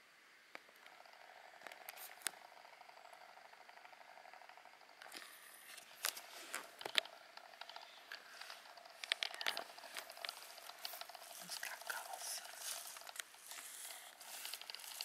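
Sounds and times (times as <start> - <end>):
sharp clicks: 5.0 - 15.0
leaves rustling and crackling: 9.6 - 15.0.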